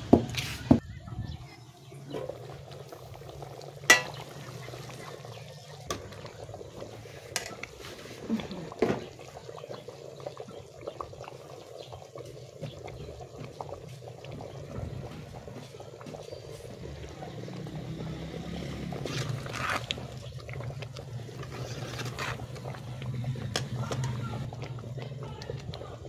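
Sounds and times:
pot boiling with bubbling rumble: 0:00.0 - 0:26.0
metal ladle stirring in pot: 0:02.3 - 0:08.3, 0:18.9 - 0:25.9.

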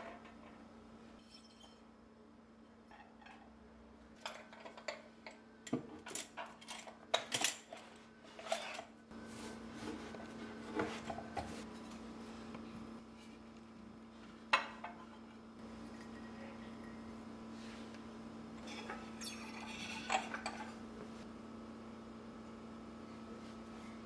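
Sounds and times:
faint steady hum: 0:00.0 - 0:24.0
ceramic dishes clinking: 0:18.6 - 0:20.8.

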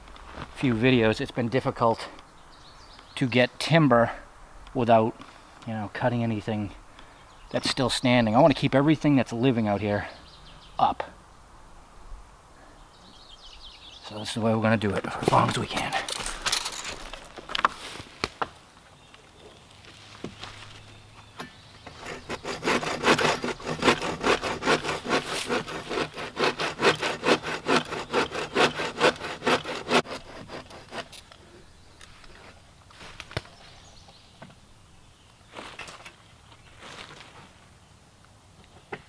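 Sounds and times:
hand saw cutting log: 0:21.9 - 0:31.2.

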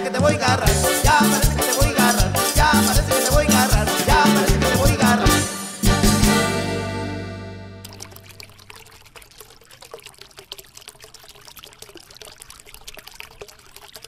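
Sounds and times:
music chord ringing: 0:03.9 - 0:08.2
water trickling and splashing: 0:07.8 - 0:14.0.

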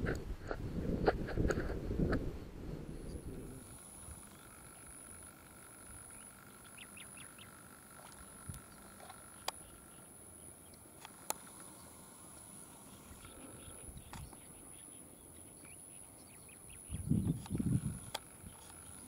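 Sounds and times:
sharp clicks: 0:10.7 - 0:11.7, 0:17.2 - 0:18.8.

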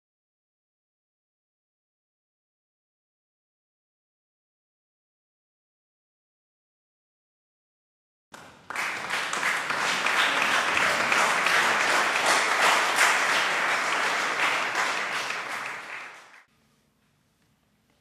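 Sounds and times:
audience clapping: 0:08.4 - 0:16.5.

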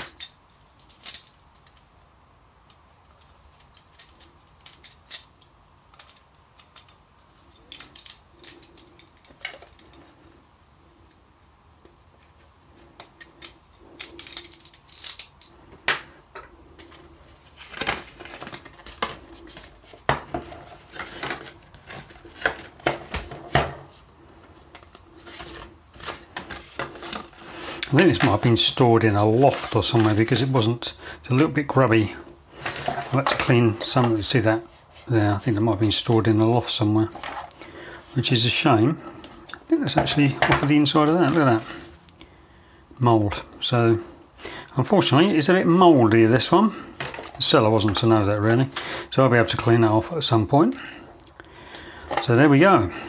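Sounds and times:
packaging crinkling and scraping: 0:16.7 - 0:30.9, 0:32.6 - 0:36.3, 0:39.2 - 0:42.0, 0:46.9 - 0:48.8.

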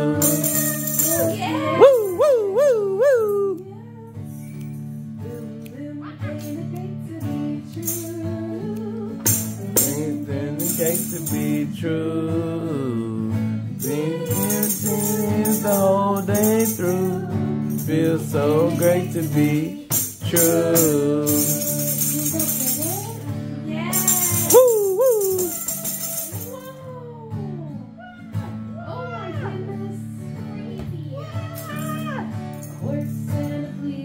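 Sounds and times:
tambourine jingles: 0:00.0 - 0:03.6, 0:04.2 - 0:05.7, 0:07.8 - 0:11.9, 0:13.7 - 0:26.8, 0:31.4 - 0:33.9
woman singing: 0:00.0 - 0:04.5, 0:05.2 - 0:13.1, 0:13.8 - 0:34.0
acoustic guitar strumming: 0:00.0 - 0:34.0.

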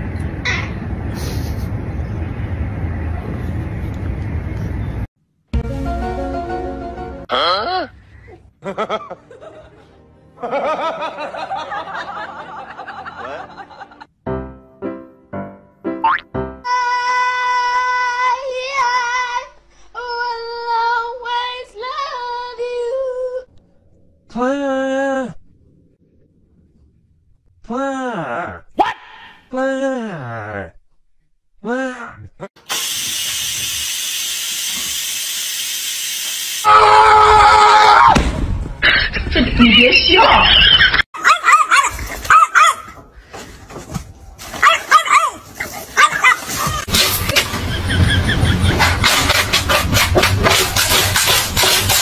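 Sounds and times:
puppy yipping: 0:41.2 - 0:42.9, 0:46.0 - 0:46.8.

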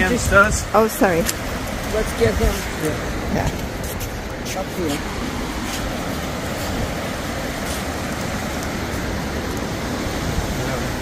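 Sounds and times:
surf: 0:00.0 - 0:11.0
wind on microphone: 0:00.0 - 0:11.0.

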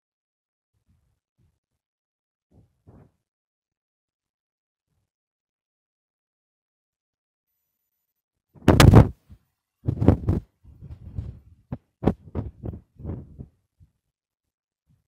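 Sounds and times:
microphone handling thumps: 0:02.6 - 0:03.2, 0:08.6 - 0:13.5
knocks and rubbing noises: 0:08.6 - 0:09.3.

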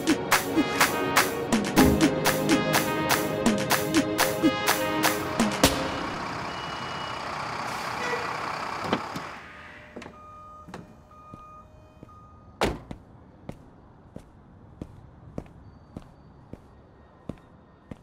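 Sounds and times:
music: 0:00.0 - 0:06.2
faint short beeps: 0:06.5 - 0:07.2, 0:10.1 - 0:12.6
truck door shutting: 0:08.8 - 0:11.0, 0:12.6 - 0:13.0.

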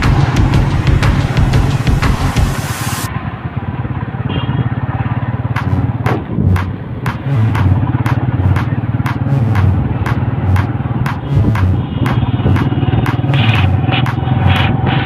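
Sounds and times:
sharp regular tapping: 0:00.0 - 0:02.5, 0:05.6 - 0:15.0.

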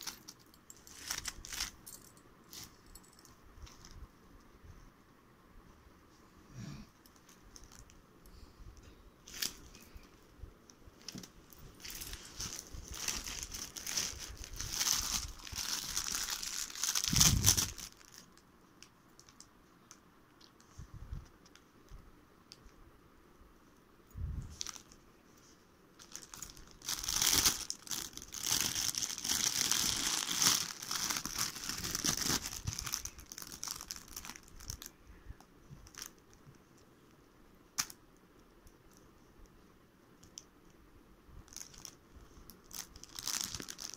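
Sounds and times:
plastic packaging crinkling: 0:00.0 - 0:04.0, 0:09.2 - 0:10.1, 0:11.0 - 0:19.5, 0:24.5 - 0:25.0, 0:26.0 - 0:35.0, 0:35.8 - 0:36.4, 0:41.5 - 0:43.9.

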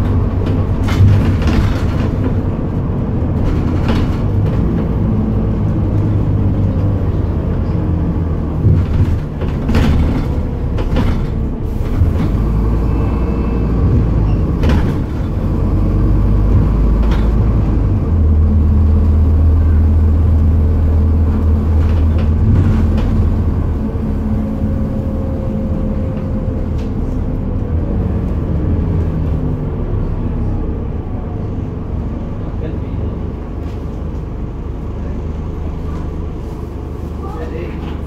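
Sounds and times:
knocks and rattles: 0:00.0 - 0:05.4, 0:08.6 - 0:12.4, 0:13.9 - 0:15.5
bus diesel engine droning: 0:00.0 - 0:38.0.

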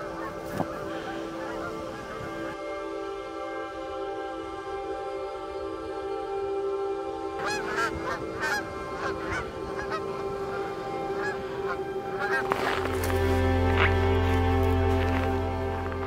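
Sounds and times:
geese honking: 0:00.0 - 0:02.9, 0:07.2 - 0:16.0.

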